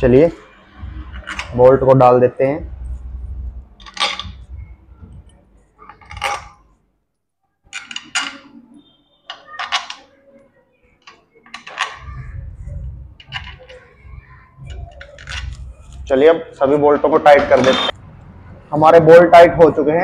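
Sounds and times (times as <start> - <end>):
bolts clinking on metal: 3.8 - 4.5, 7.7 - 8.6, 9.3 - 10.1, 11.0 - 12.1.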